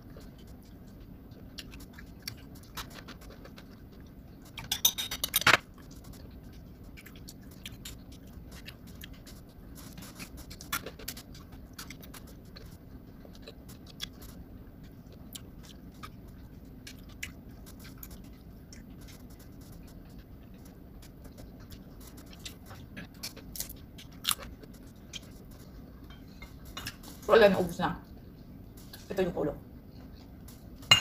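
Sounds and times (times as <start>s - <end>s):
chewing and crunching dried fish: 0.0s - 27.2s
fingers and utensils clicking on plates: 4.4s - 6.3s.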